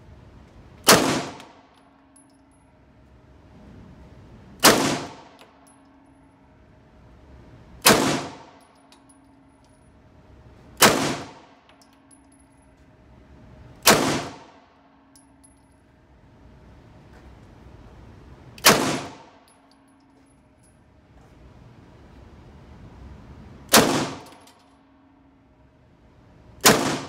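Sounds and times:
pistol shots echoing indoors: 0:00.8 - 0:02.8, 0:04.6 - 0:06.6, 0:07.8 - 0:09.5, 0:10.8 - 0:12.5, 0:13.8 - 0:16.0, 0:18.6 - 0:20.0, 0:23.7 - 0:25.5, 0:26.6 - 0:27.0.

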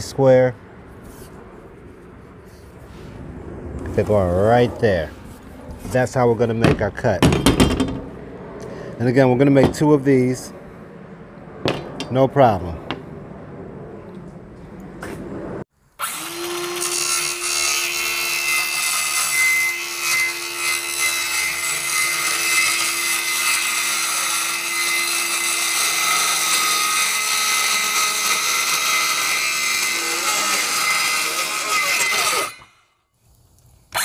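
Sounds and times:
circular saw cutting plywood: 0:16.0 - 0:32.8.

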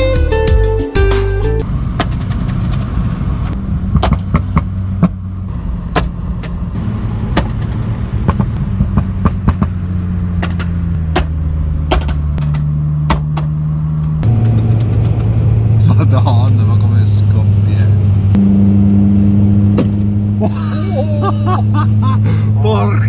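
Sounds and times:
car engine and road drone: 0:01.3 - 0:23.0
exhaust cracks and pops: 0:02.0 - 0:05.2, 0:07.3 - 0:09.8, 0:10.4 - 0:15.4.

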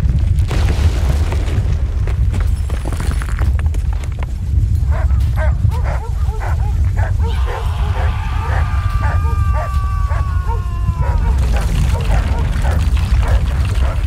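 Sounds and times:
deep continuous rumble: 0:00.0 - 0:14.0
dogs barking and yelping: 0:04.8 - 0:14.0.

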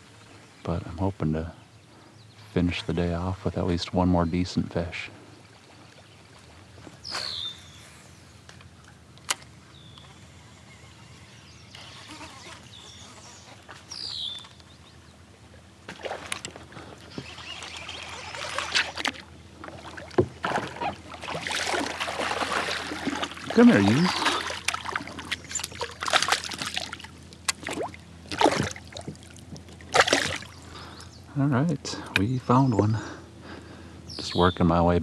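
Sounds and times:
quiet lapping water: 0:00.0 - 0:34.8
fish splashing in water: 0:15.9 - 0:30.6.

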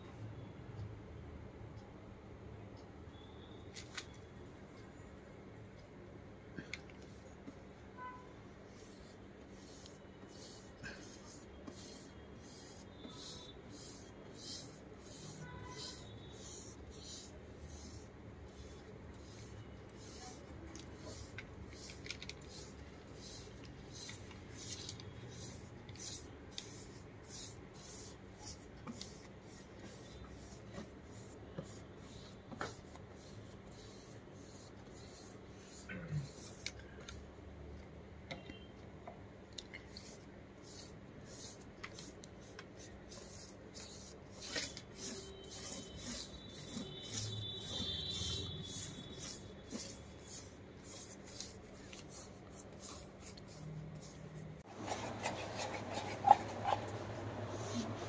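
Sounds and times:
paintbrush scraping wood: 0:08.7 - 0:36.6, 0:39.8 - 0:58.0.

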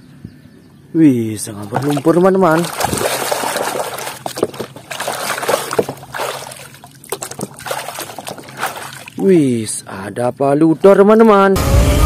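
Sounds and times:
water sloshing in a plastic tub: 0:01.3 - 0:09.6
water dripping: 0:01.4 - 0:09.3.

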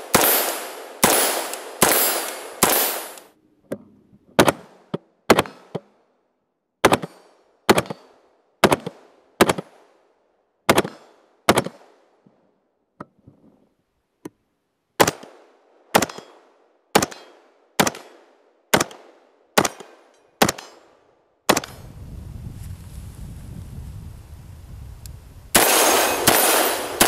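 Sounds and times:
rifle shots with echo: 0:00.0 - 0:03.3, 0:15.0 - 0:21.8, 0:25.6 - 0:27.0.

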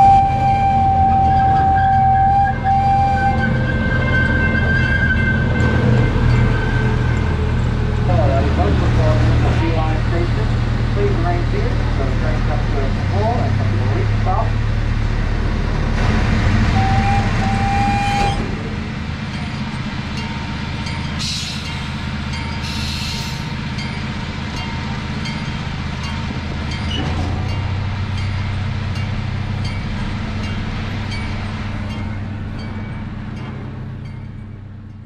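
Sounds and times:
miniature train engine drone: 0:00.0 - 0:35.0
hiss bursts: 0:22.6 - 0:23.5.

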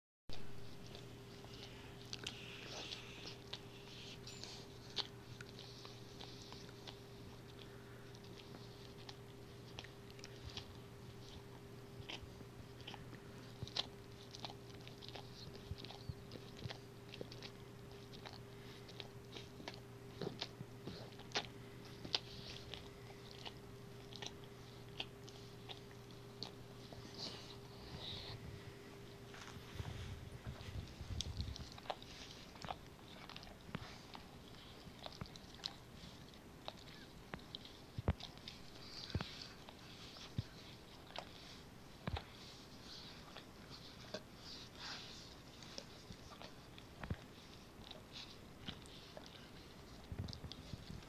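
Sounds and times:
steady low hum: 0:00.3 - 0:51.0
dog licking and smacking: 0:00.4 - 0:28.4, 0:29.1 - 0:51.0
dog licking and slurping: 0:29.2 - 0:51.0.

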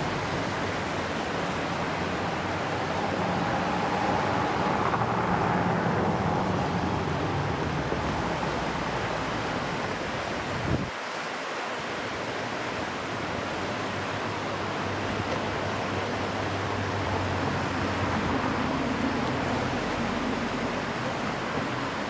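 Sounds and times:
flowing river water: 0:00.0 - 0:22.0
wind on microphone: 0:02.2 - 0:11.0.

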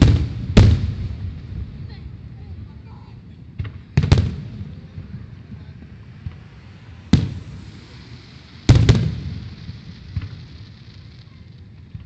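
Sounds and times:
low rolling echo: 0:00.0 - 0:12.0
firework shells bursting: 0:03.6 - 0:12.0.

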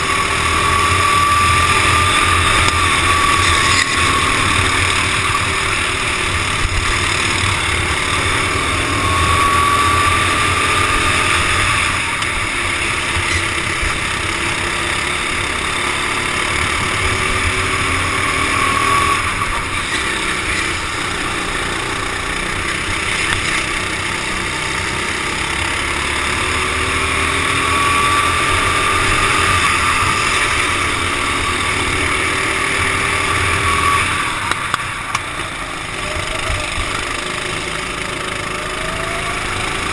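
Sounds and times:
kart engine revving: 0:00.0 - 0:39.9
other karts passing: 0:00.0 - 0:39.9.

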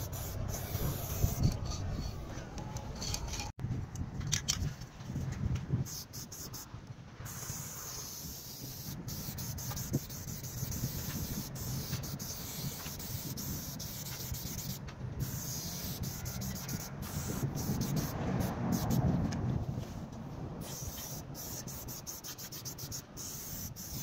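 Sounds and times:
spray paint can hissing: 0:00.0 - 0:02.2, 0:05.8 - 0:06.7, 0:07.3 - 0:19.1, 0:20.6 - 0:24.0.

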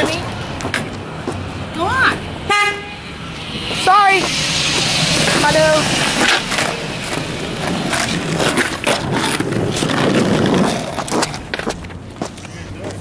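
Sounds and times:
skateboard wheels rolling on asphalt: 0:03.2 - 0:13.0.

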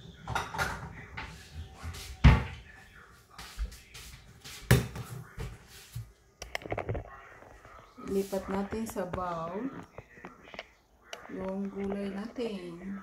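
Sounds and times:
dishes clattering: 0:00.0 - 0:02.6.

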